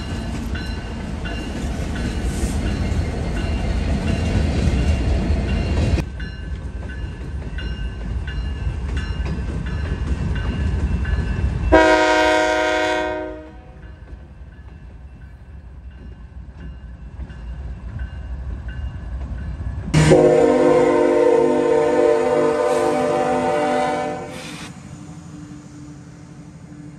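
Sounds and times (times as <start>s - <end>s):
crossing bell ringing: 0.0s - 20.5s
freight train rumbling: 0.0s - 26.9s
locomotive horn blast: 11.7s - 13.8s, 20.0s - 24.7s.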